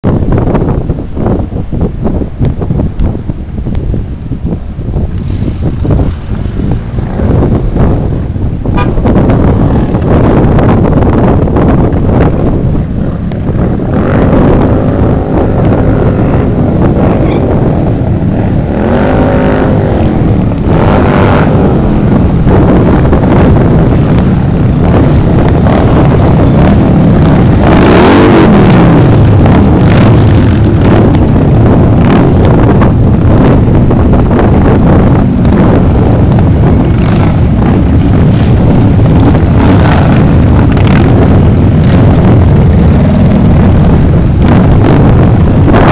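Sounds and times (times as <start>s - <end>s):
motorcycles passing: 4.0s - 45.9s.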